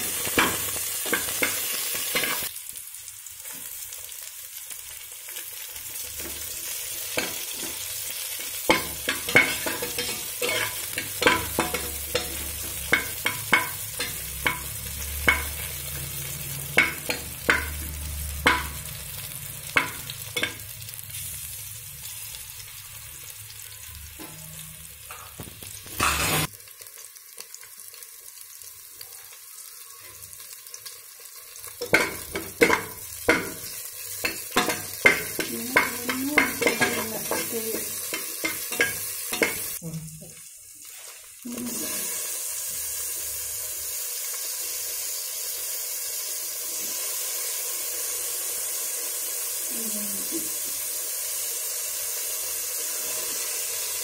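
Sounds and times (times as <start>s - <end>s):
vegetables sizzling in hot oil: 0.0s - 54.0s
metal spatula scraping pan: 8.4s - 17.8s, 25.8s - 26.5s, 31.8s - 39.8s.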